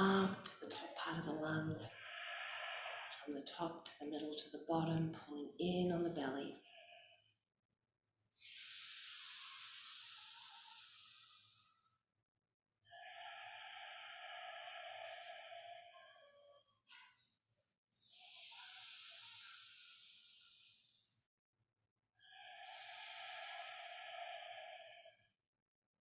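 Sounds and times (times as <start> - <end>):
woman breathing deeply: 1.8 - 4.0, 6.6 - 7.4, 8.4 - 12.0, 12.9 - 17.3, 18.0 - 21.3, 22.2 - 25.4
woman sniffing: 8.4 - 11.6, 18.1 - 20.9.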